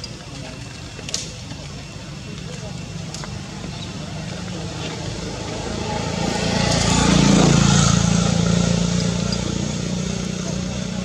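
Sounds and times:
motor vehicle passing by: 3.3s - 11.0s.

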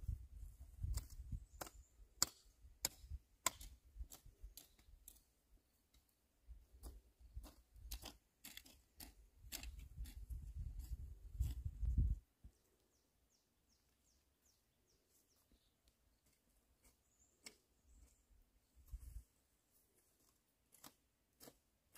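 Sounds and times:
hand hoe chopping into soil: 0.8s - 5.3s, 6.7s - 11.7s, 20.2s - 21.9s.

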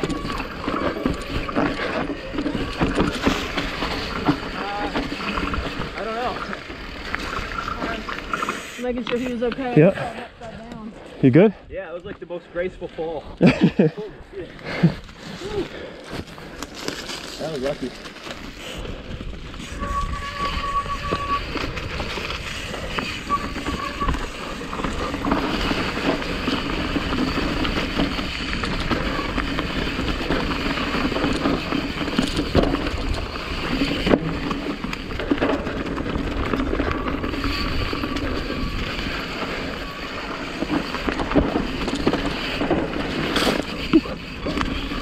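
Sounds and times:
bike rattling over bumps: 0.0s - 10.2s, 14.8s - 45.0s
bike tyre noise on dirt: 0.0s - 10.6s, 12.0s - 45.0s
wind noise: 14.2s - 45.0s.

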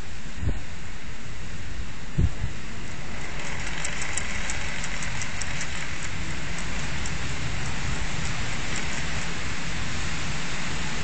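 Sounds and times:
gale wind rushing: 0.0s - 11.0s
wind buffeting microphone: 0.2s - 11.0s
faint high ticks: 2.9s - 9.6s.

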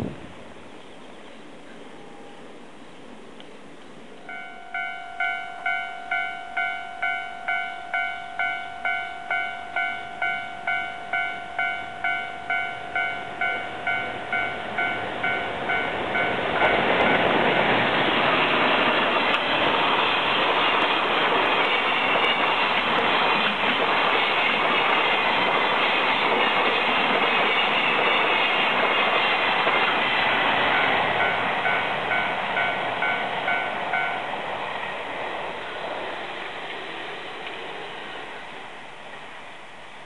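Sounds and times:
freight train passing: 0.0s - 40.0s
level crossing bell dinging: 4.3s - 16.4s.

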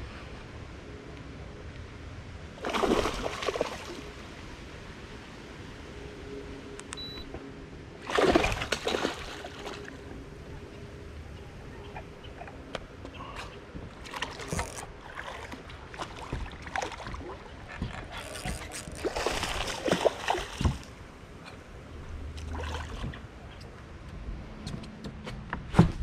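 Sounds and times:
fish splashing and thrashing: 2.6s - 4.1s, 8.0s - 10.0s, 13.2s - 21.0s, 22.3s - 23.3s.

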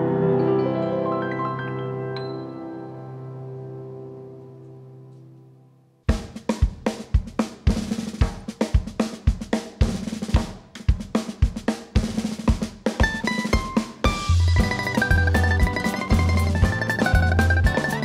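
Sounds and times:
bass drum beats: 6.1s - 18.0s
snare and hi-hat strokes: 6.1s - 18.0s.

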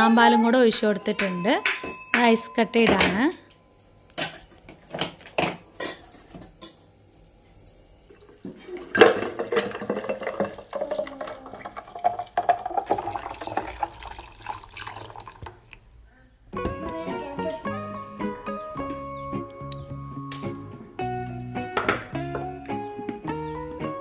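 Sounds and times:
ice cubes clinking: 8.7s - 15.8s.

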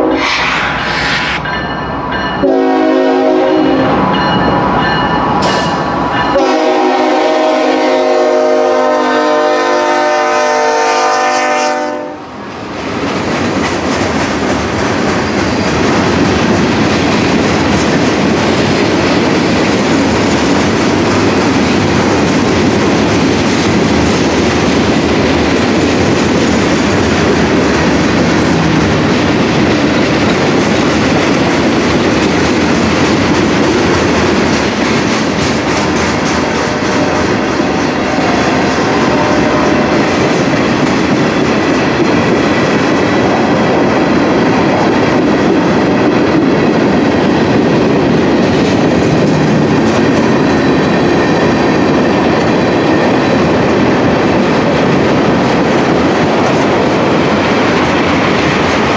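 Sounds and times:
locomotive horn: 0.0s - 0.5s, 2.4s - 4.0s, 6.3s - 12.3s, 38.0s - 40.1s
train wheels rumbling on rails: 0.0s - 58.9s.

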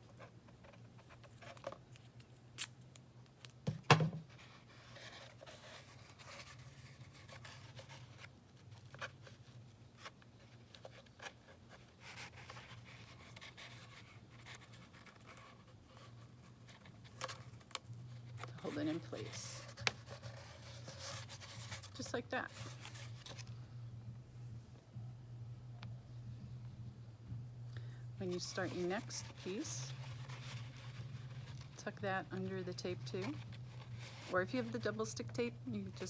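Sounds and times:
steady low hum: 4.2s - 36.0s
tape scratching and rubbing: 4.4s - 23.5s, 28.2s - 36.0s.

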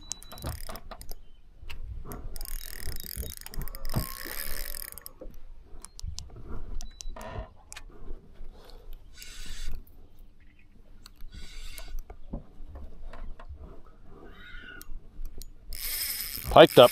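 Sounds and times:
fishing reel cranking: 0.0s - 1.2s, 2.2s - 5.2s, 15.3s - 16.9s
reel drag clicking: 0.0s - 6.3s, 14.8s - 16.9s.

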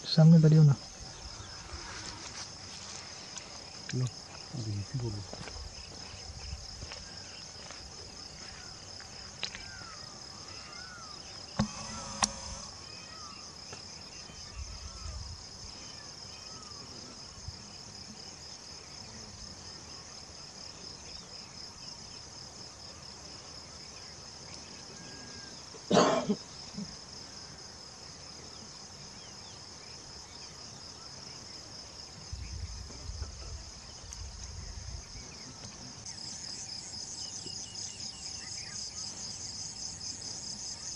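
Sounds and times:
crickets trilling: 0.0s - 40.9s.

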